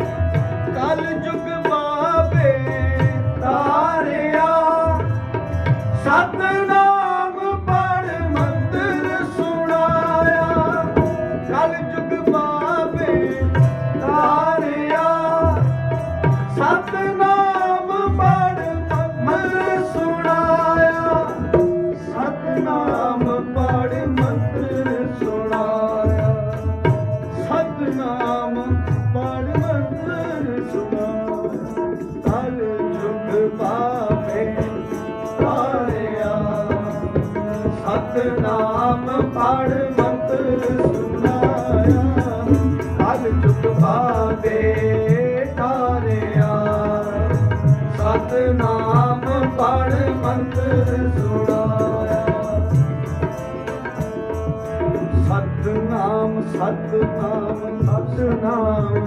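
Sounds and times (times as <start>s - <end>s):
harmonium: 0.0s - 59.0s
men singing devotional song: 0.0s - 59.0s.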